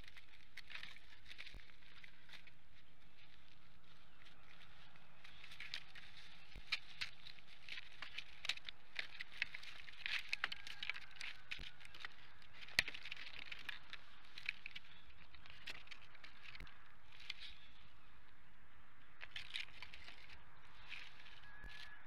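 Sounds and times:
sticks crackling and rustling: 0:00.0 - 0:22.0
stick snapping: 0:05.2 - 0:16.6.

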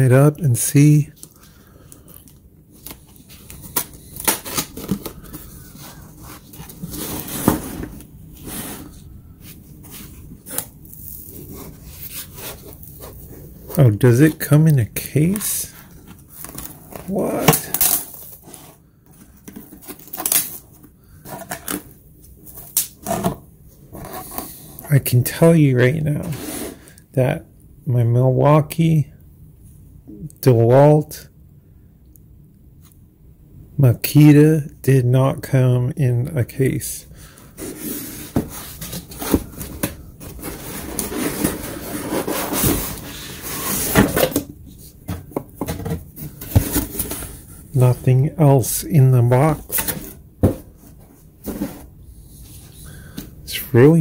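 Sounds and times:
cardboard box scraping and rustling: 0:04.4 - 0:09.0, 0:26.2 - 0:26.8, 0:37.6 - 0:44.4, 0:45.0 - 0:47.5, 0:49.6 - 0:52.7
cardboard scraping against fabric: 0:37.6 - 0:44.2.

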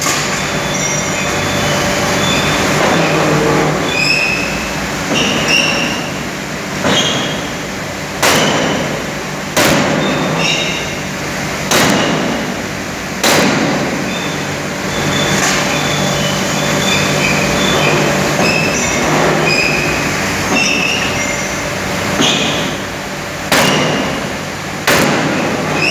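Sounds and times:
machine hum: 0:00.0 - 0:25.9
high metallic squeals: 0:00.4 - 0:06.2, 0:14.1 - 0:21.6
forging hammer striking steel: 0:23.5 - 0:25.9.

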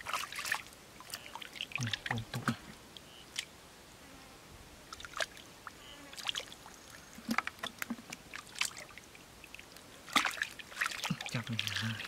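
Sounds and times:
hands splashing in muddy water: 0:00.0 - 0:02.6, 0:07.2 - 0:09.0, 0:10.1 - 0:12.0.

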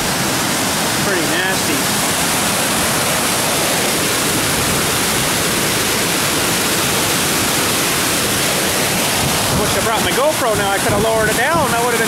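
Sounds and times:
floodwater rushing into whitewater: 0:00.0 - 0:12.0.

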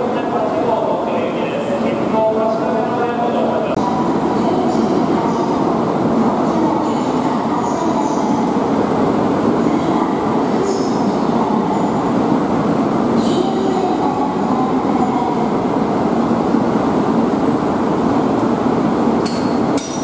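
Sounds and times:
train equipment rushing hum: 0:00.0 - 0:20.0.

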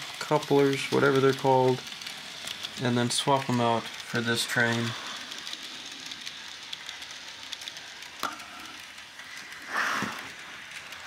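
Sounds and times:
model train running on track: 0:00.0 - 0:11.0.

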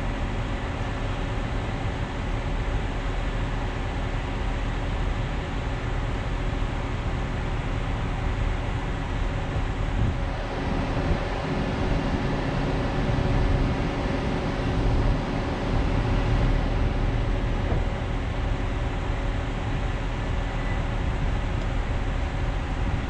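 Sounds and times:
street traffic rumble: 0:00.0 - 0:23.0.

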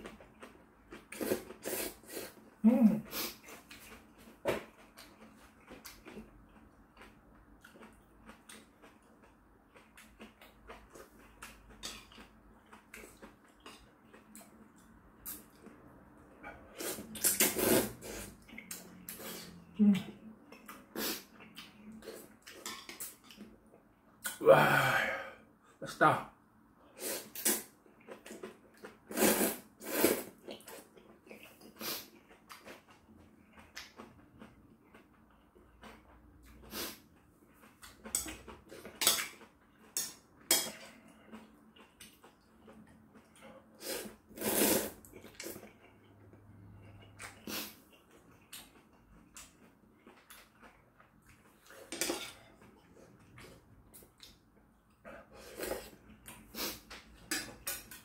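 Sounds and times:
noodles slurped: 0:29.1 - 0:30.8, 0:43.8 - 0:45.9.

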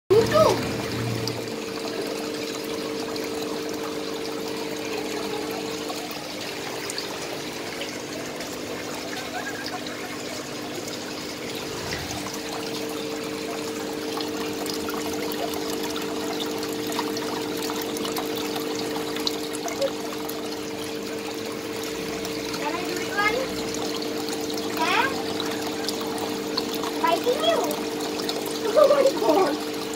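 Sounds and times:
water trickling into a tank: 0:00.1 - 0:29.9.

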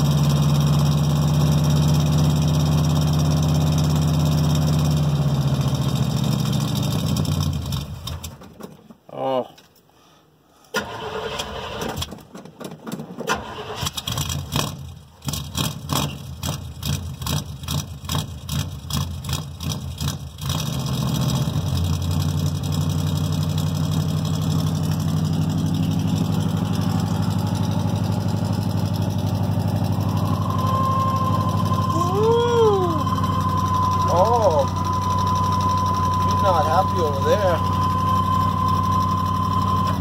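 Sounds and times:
engine idling: 0:00.0 - 0:08.4, 0:13.4 - 0:40.0
thin steady whine: 0:25.5 - 0:40.0.

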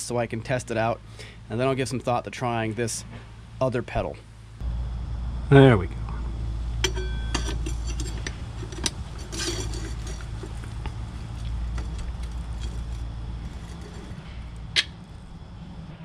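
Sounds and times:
steady low hum: 0:00.0 - 0:16.0
metal parts clinking and rattling: 0:06.8 - 0:14.3.

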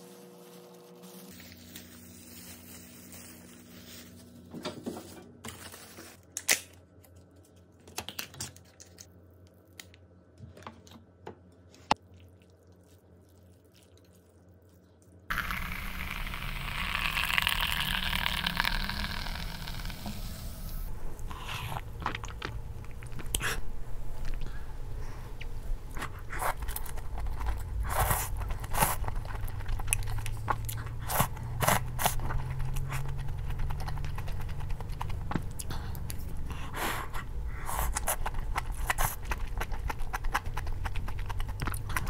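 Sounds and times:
plastic bag rustling: 0:00.0 - 0:06.4.

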